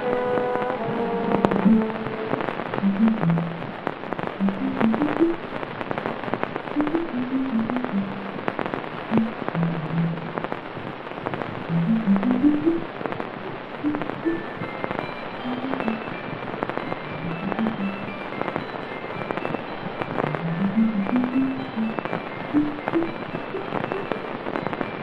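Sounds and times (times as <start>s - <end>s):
slow melody of low notes: 0.0s - 3.8s, 4.4s - 5.5s, 6.8s - 8.5s, 9.1s - 10.5s, 11.7s - 12.9s, 13.9s - 16.2s, 17.2s - 18.5s, 20.2s - 24.0s
dense crackling and popping: 0.0s - 25.0s.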